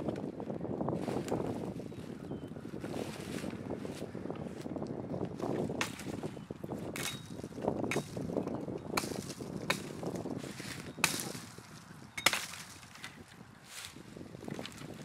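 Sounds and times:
axe chopping branches: 5.5s - 6.3s, 6.9s - 13.2s.

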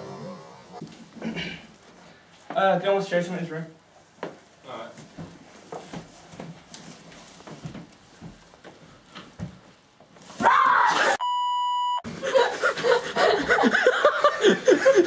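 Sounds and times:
agitated shouting: 10.4s - 11.2s
person shouting: 10.4s - 11.2s
censor bleep tone: 11.2s - 12.0s.

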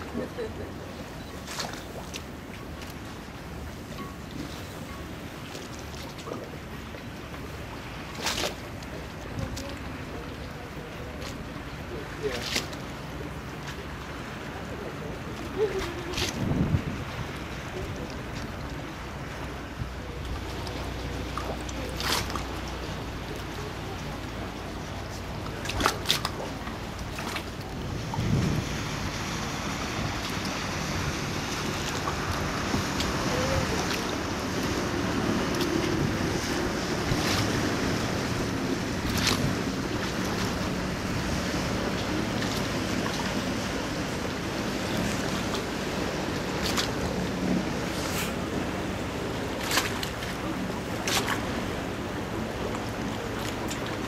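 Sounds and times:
water sloshing around boat: 0.0s - 54.0s
wind buffeting microphone: 15.2s - 54.0s.

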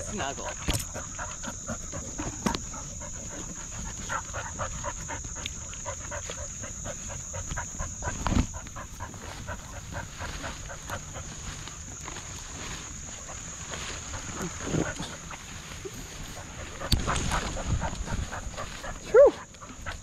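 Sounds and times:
dog panting fast: 0.0s - 11.4s, 16.2s - 20.0s
high insect drone: 0.0s - 20.0s.

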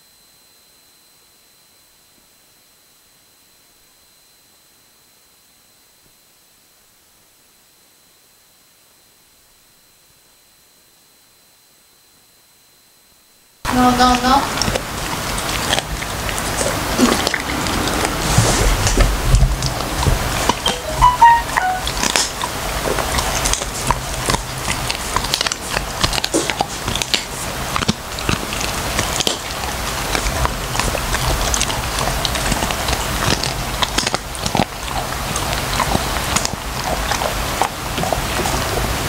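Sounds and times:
dog crunching a bone: 14.5s - 18.2s, 22.0s - 38.7s.

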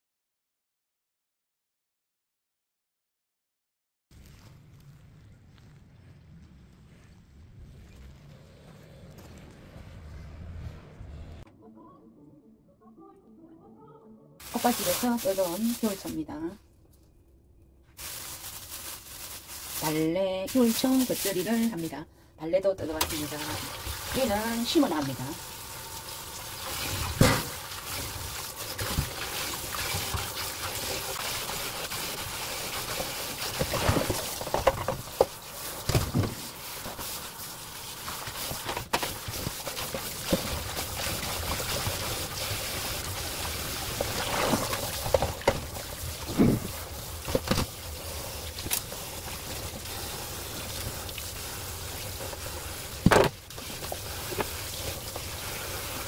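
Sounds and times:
hands rinsing leaves: 14.4s - 16.4s, 18.0s - 22.0s, 22.6s - 56.0s
sharp knocks and splashes: 26.9s - 31.2s.

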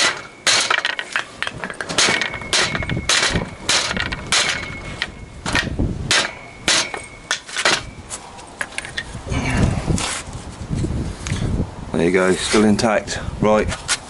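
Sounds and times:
hammer striking wooden frame: 0.0s - 8.0s.

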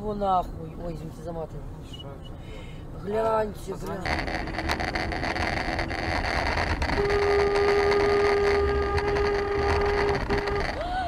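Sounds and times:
road and engine noise: 0.0s - 11.0s
car horn honking: 4.0s - 11.0s.

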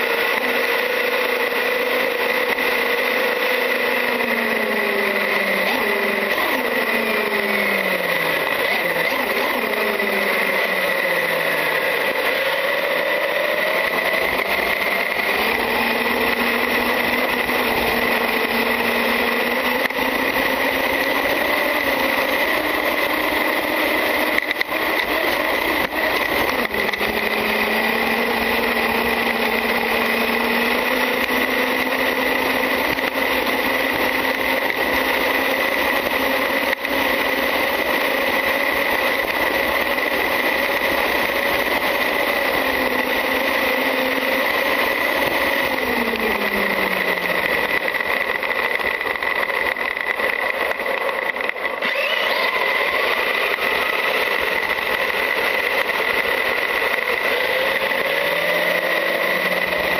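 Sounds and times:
electric motor whine: 0.0s - 59.9s
high-pitched tone: 51.8s - 53.9s.

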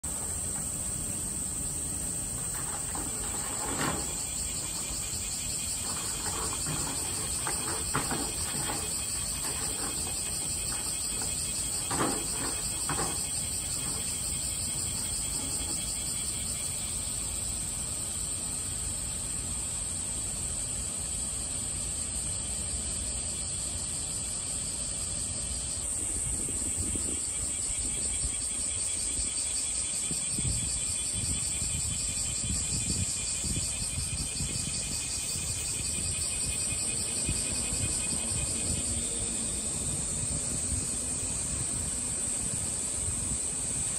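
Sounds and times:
high-pitched insect drone: 0.1s - 43.9s
soft knocks: 2.4s - 16.2s.

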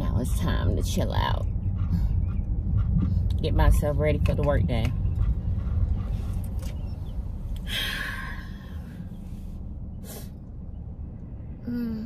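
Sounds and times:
car interior rumble: 0.0s - 12.0s
woman sighing: 7.6s - 8.7s, 11.7s - 12.0s
woman sniffing: 10.0s - 10.4s.

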